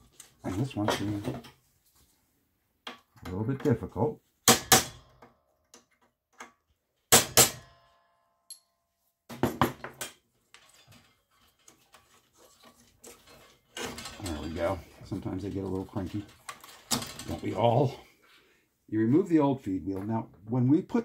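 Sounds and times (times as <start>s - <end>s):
faint clicks and rattles: 10.4s - 17.7s.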